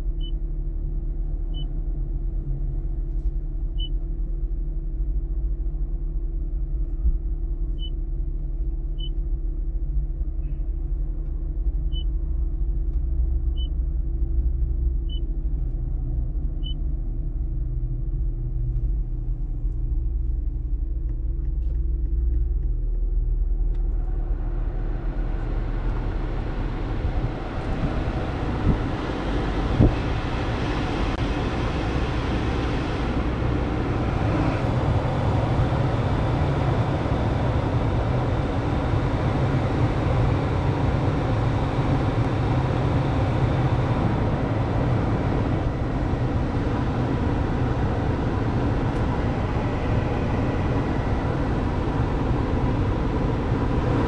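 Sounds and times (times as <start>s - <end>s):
car engine idling hum: 0.0s - 54.0s
air conditioning blower rushing air: 24.0s - 54.0s.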